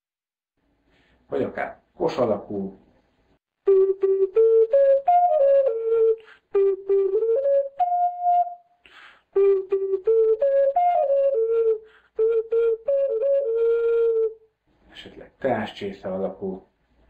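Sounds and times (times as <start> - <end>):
player drawing breath: 0.8 - 1.2, 8.8 - 9.3
ocarina melody: 3.6 - 14.5.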